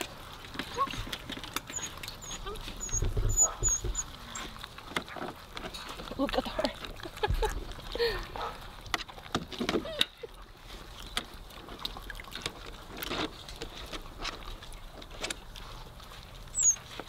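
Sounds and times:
puppies clicking on metal pan: 0.0 - 10.4
water sloshing: 0.0 - 17.0.

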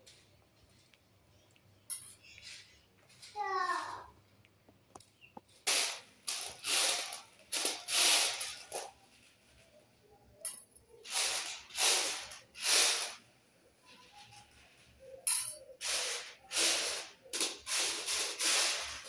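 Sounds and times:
chickpeas rattling on metal tray: 5.6 - 9.0, 11.0 - 13.2, 15.3 - 19.0.

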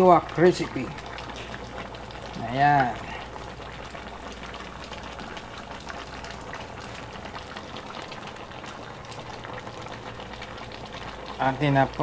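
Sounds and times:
pot bubbling and popping: 0.0 - 12.0.

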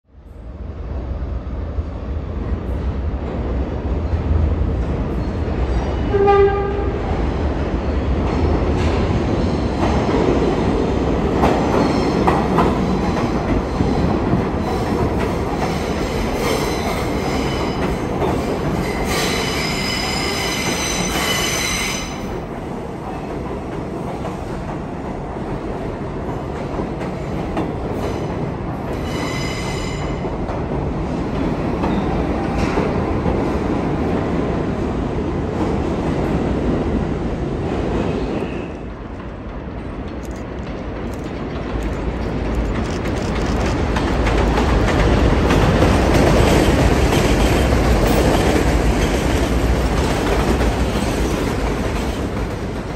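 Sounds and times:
train horn blast: 6.1 - 7.1
train wheels clattering on rails: 8.1 - 52.9.

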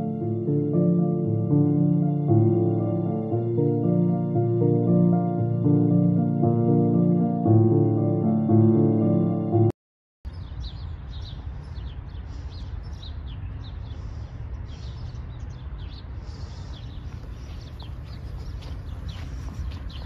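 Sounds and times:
small birds chirping: 10.3 - 20.0.

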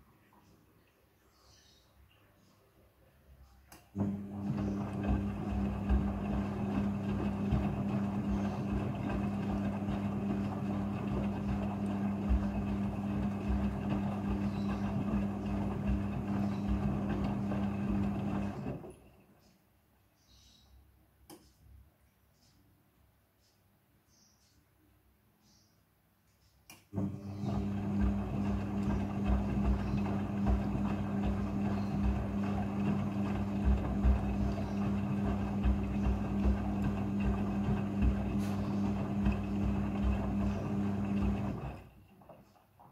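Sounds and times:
washing machine motor hum: 3.9 - 19.2, 26.9 - 42.9.

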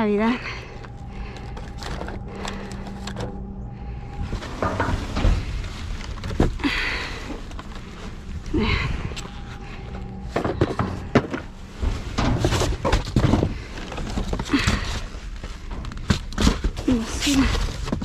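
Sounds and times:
boxes thunking in dumpster: 10.2 - 18.0
cardboard scraping and rustling: 10.3 - 18.0.

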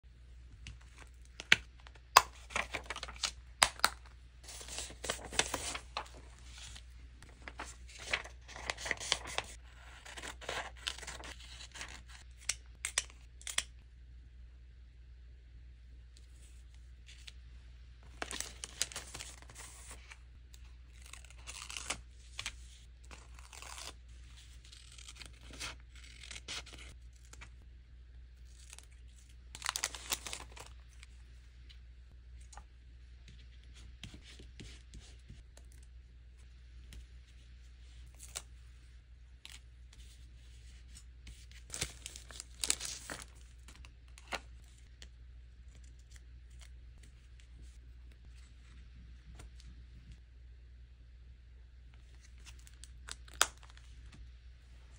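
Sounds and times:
low steady hum: 0.0 - 54.9
paper tearing and rustling: 4.5 - 6.2, 7.4 - 12.1, 41.7 - 43.3.

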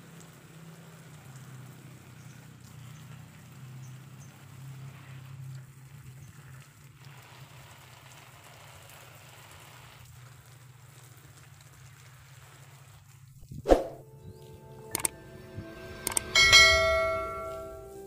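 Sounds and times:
hose water spraying: 0.0 - 14.1.

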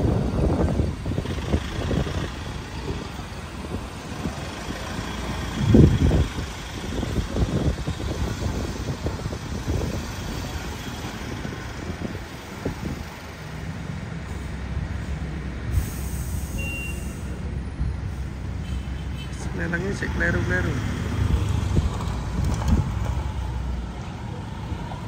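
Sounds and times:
diesel engine rumbling: 0.0 - 25.0.

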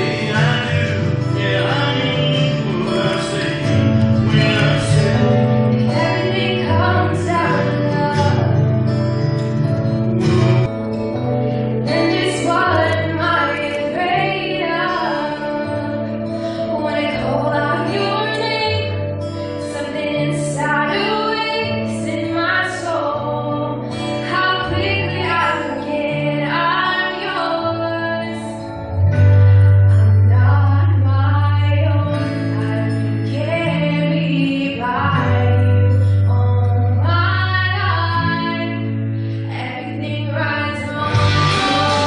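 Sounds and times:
woman singing a love song: 0.0 - 2.8, 4.3 - 8.7, 11.8 - 28.9, 30.2 - 42.0
instrumental accompaniment: 0.0 - 31.2, 40.6 - 42.0
sustained bass notes: 0.0 - 42.0.

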